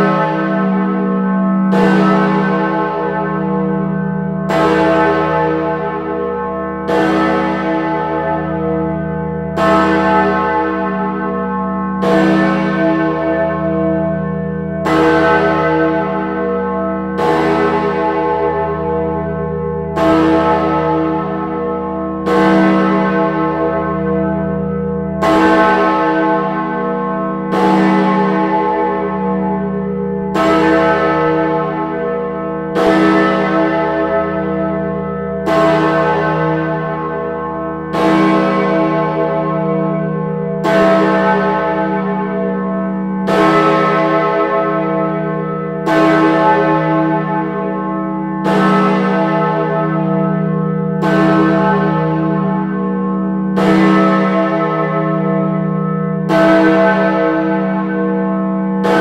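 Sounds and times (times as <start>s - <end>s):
large tower bell tolling: 0.0s - 59.0s.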